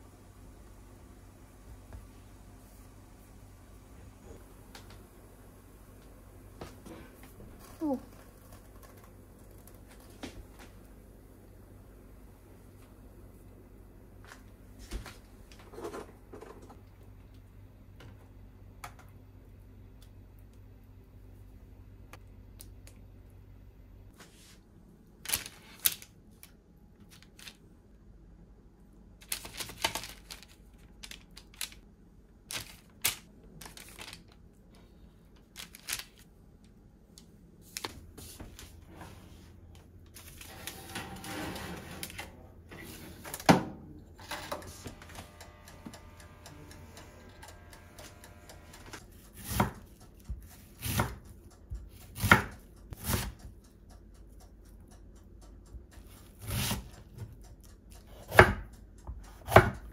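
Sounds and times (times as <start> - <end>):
low steady hum: 0.0 - 59.9
knife chopping on cutting board: 49.4 - 51.2, 51.9 - 53.4, 59.3 - 59.8.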